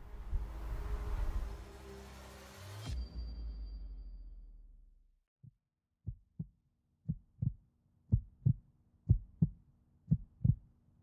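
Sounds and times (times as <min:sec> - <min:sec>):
music: 0:00.0 - 0:05.2
heartbeat thumps: 0:05.4 - 0:10.7.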